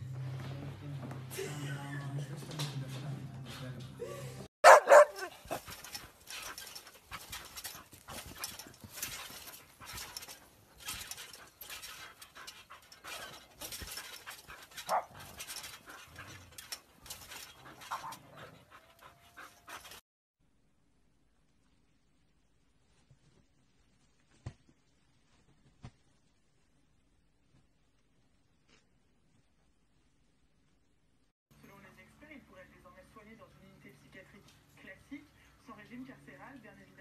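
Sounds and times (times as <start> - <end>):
dog panting: 4.6 - 20.0
soft thumps on trampoline: 4.7 - 17.6.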